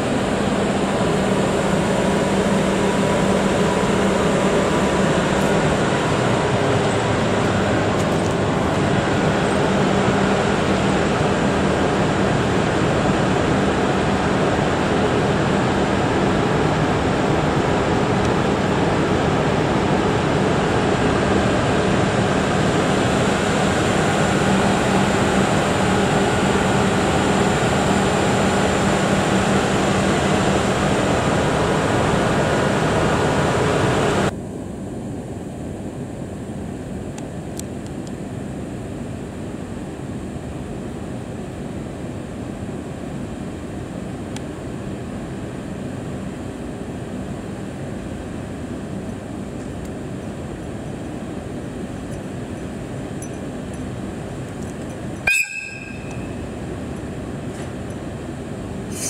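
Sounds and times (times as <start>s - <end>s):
train rushing noise with low hum: 0.0s - 34.4s
quiet locomotive hum: 0.0s - 59.0s.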